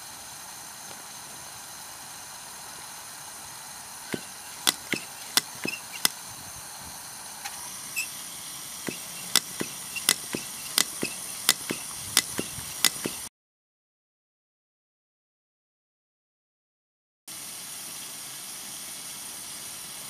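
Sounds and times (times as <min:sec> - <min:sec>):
burner hissing: 0:03.6 - 0:13.3
sharp metallic clicks: 0:04.1 - 0:06.2, 0:08.9 - 0:13.3.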